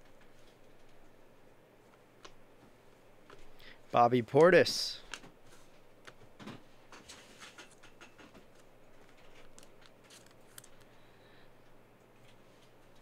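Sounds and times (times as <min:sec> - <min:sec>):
cards handled on a table: 0:05.0 - 0:10.9.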